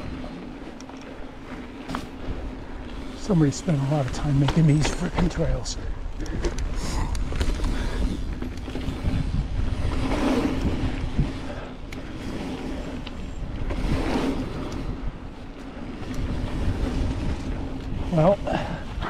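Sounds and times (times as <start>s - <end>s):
bike tyre and drivetrain rattle: 0.0s - 19.0s
wind rumble on microphone: 0.0s - 19.0s.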